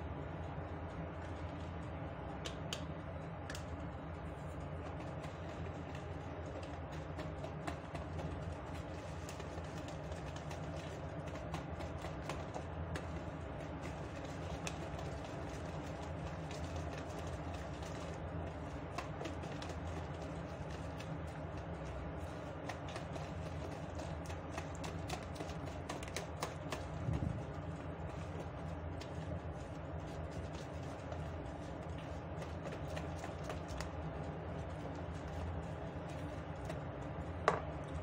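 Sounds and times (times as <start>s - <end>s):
steady low hum: 0.0s - 38.0s
whisk clicking against plastic bowl: 4.8s - 29.7s.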